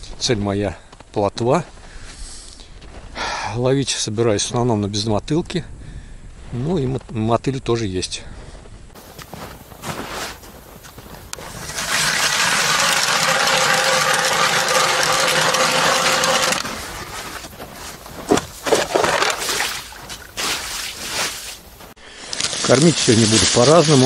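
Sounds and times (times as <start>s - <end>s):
ice auger grinding through ice: 11.4s - 21.4s.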